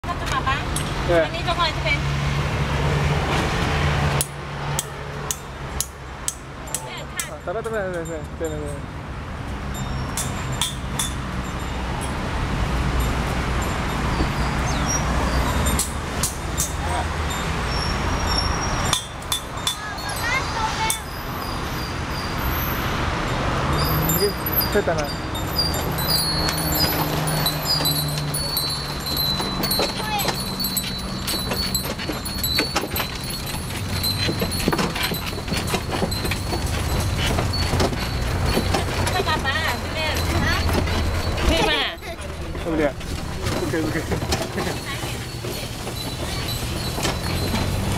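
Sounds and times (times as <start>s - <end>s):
bell jingling: 9.6s - 47.9s
low engine rumble: 23.8s - 47.9s
wooden cart rattling: 23.8s - 47.9s.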